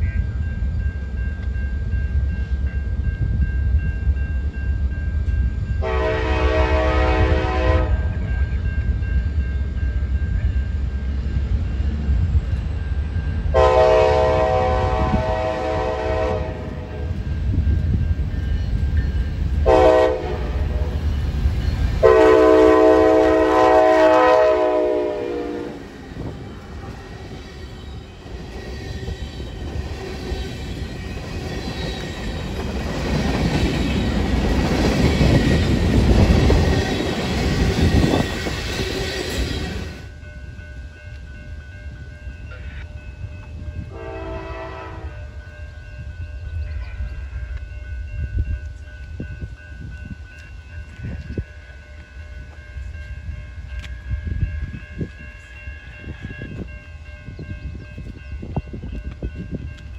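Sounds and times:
train rumble: 0:00.0 - 0:59.9
locomotive air horn blasts: 0:05.8 - 0:08.2, 0:13.5 - 0:17.0, 0:19.6 - 0:20.9, 0:22.0 - 0:25.9, 0:43.9 - 0:45.3.

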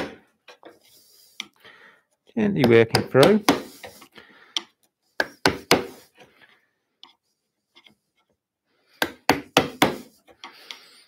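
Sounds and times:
mallet knocking chisel into wood: 0:02.6 - 0:03.7, 0:05.2 - 0:05.9, 0:09.0 - 0:10.0.

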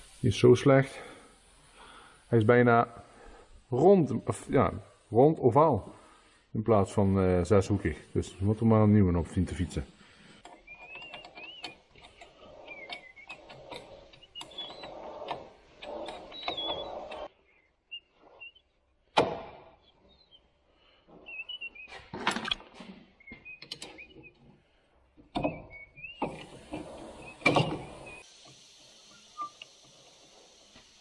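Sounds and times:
spanner clicking and scraping metal: 0:10.4 - 0:17.3.

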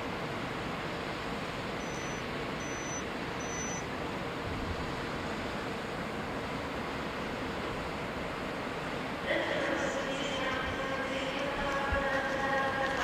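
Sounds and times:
short high-pitched chirps: 0:01.8 - 0:03.8.

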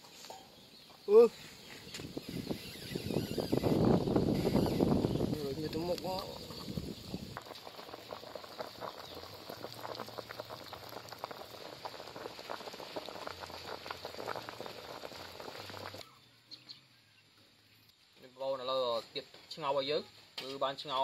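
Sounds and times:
water boiling and bubbling: 0:02.1 - 0:16.2.

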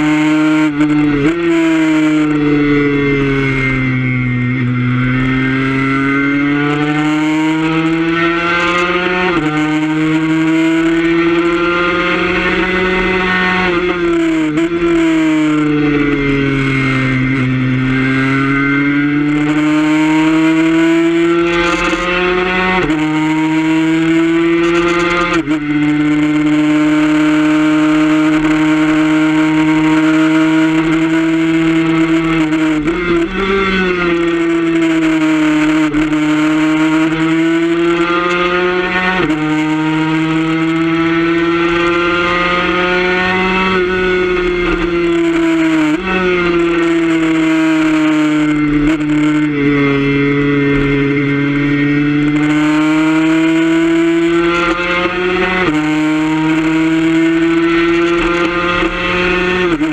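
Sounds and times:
motorcycle engine at high revs: 0:00.0 - 0:59.9.

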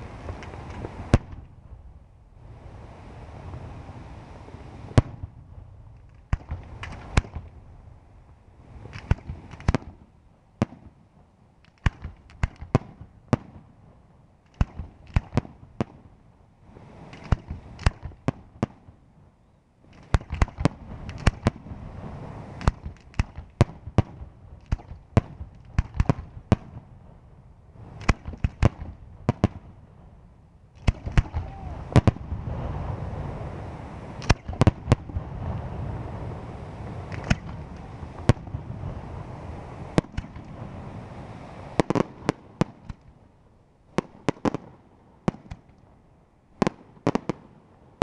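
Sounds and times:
firework shells bursting: 0:00.0 - 0:01.5, 0:05.9 - 0:07.6, 0:08.8 - 0:10.0, 0:17.0 - 0:18.4, 0:19.9 - 0:21.6, 0:27.9 - 0:29.7, 0:30.8 - 0:32.4, 0:34.1 - 0:43.2.

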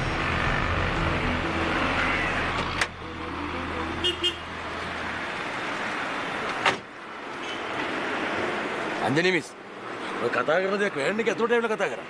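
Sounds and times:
street traffic engine hum: 0:00.0 - 0:12.0
vehicle horn toots: 0:04.0 - 0:04.4.

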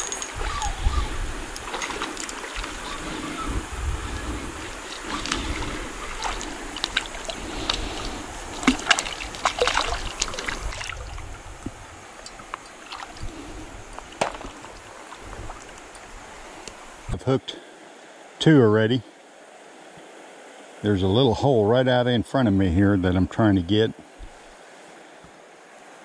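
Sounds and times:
river water splashing: 0:00.0 - 0:18.4.

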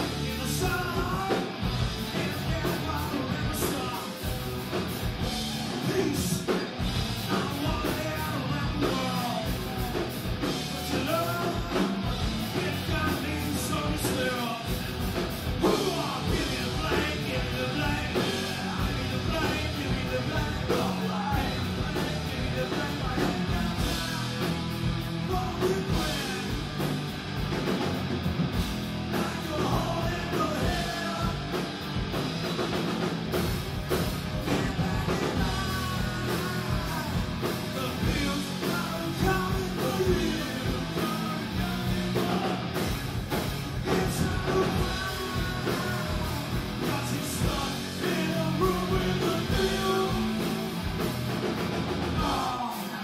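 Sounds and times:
bass: 0:00.0 - 0:53.0
drums: 0:00.0 - 0:53.0
electric guitars: 0:00.0 - 0:53.0
person singing: 0:07.2 - 0:14.8, 0:15.6 - 0:24.6, 0:34.3 - 0:42.8, 0:43.8 - 0:50.8, 0:52.2 - 0:53.0.

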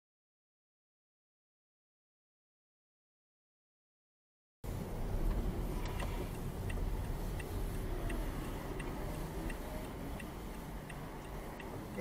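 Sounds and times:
car engine idling: 0:04.7 - 0:12.0
turn signal clicking: 0:04.7 - 0:12.0.

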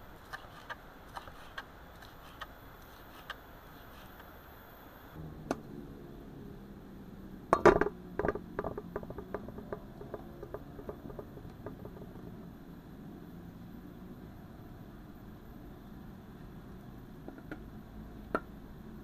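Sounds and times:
hard objects knocking and clinking: 0:07.6 - 0:12.4.

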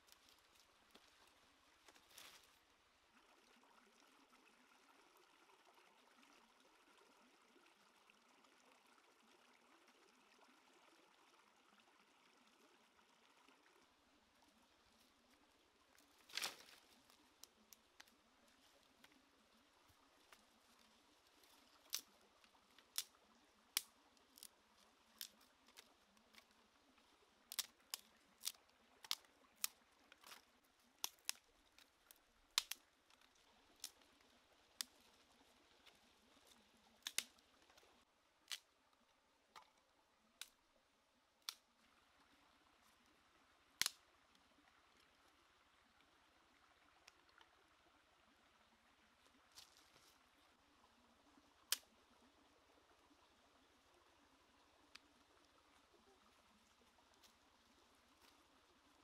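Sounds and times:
dry twigs snapping: 0:16.2 - 0:18.1, 0:21.8 - 0:22.1, 0:22.8 - 0:23.1, 0:23.8 - 0:24.5, 0:25.2 - 0:26.4, 0:27.5 - 0:30.4, 0:31.0 - 0:31.9, 0:32.6 - 0:34.1, 0:37.0 - 0:37.3.

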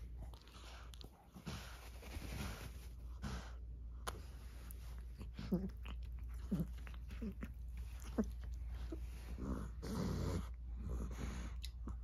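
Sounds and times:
rustling: 0:00.0 - 0:03.5
steady low hum: 0:00.0 - 0:12.0.

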